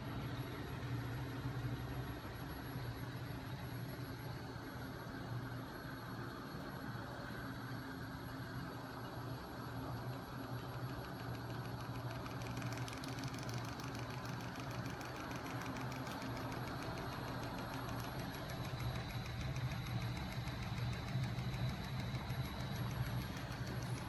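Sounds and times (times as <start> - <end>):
fast mechanical ticking: 10.1 - 24.0.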